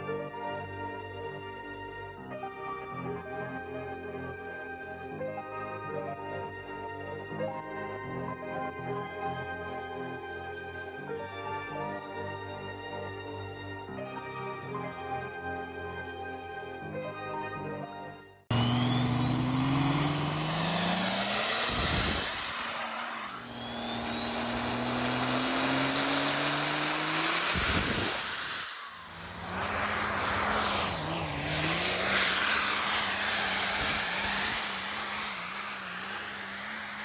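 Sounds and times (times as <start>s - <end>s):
faint rising whistle: 18.5s - 37.0s
pickup engine at full throttle: 18.5s - 37.0s
truck engine labouring: 18.5s - 37.0s.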